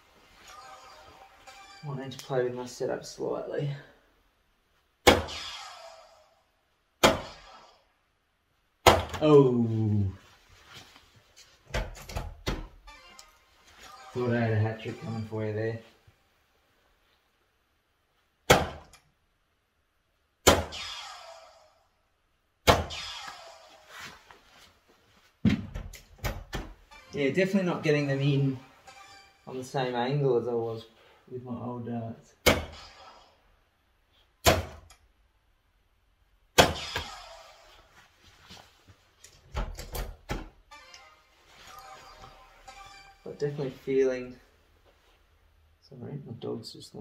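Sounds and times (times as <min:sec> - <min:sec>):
darts striking dartboard: 0:05.0 - 0:05.6, 0:07.0 - 0:07.5, 0:08.8 - 0:09.2, 0:18.5 - 0:19.0, 0:20.4 - 0:21.0, 0:22.6 - 0:23.2, 0:32.4 - 0:32.8, 0:34.4 - 0:34.9, 0:36.6 - 0:37.2.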